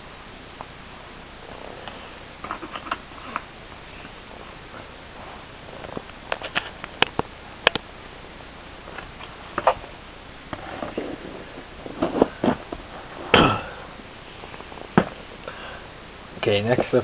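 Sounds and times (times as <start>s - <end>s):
cardboard boxes being handled: 10.5s - 13.8s
knocks and rustles: 10.5s - 13.8s.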